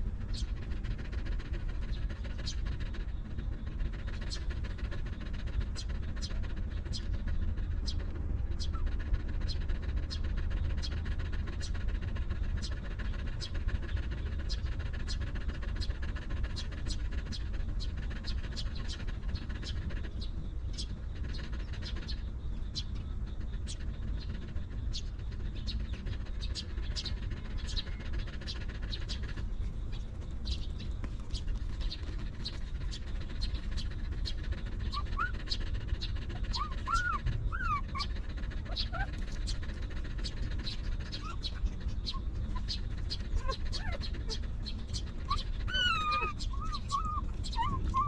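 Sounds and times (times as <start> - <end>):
steady low rumble: 0.0 - 48.0
high-pitched animal squeaks: 36.5 - 38.1, 45.3 - 48.0.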